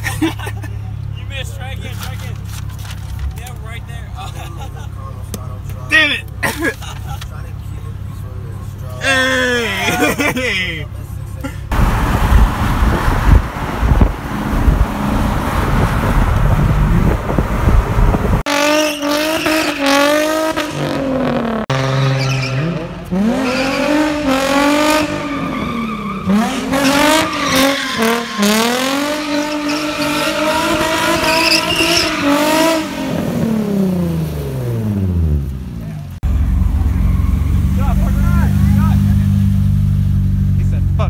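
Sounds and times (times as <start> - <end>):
road and wind noise: 0.0 - 41.0
tyres squealing: 8.7 - 10.9, 25.0 - 32.8
car engine revving: 11.2 - 41.0.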